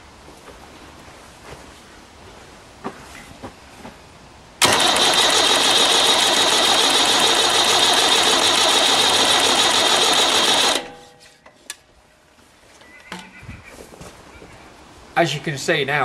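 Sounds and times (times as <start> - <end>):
starter motor cranking engine: 4.6 - 10.9.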